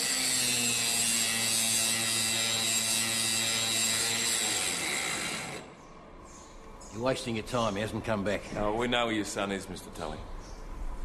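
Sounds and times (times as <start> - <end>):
angle grinder grinding: 0.0 - 5.8.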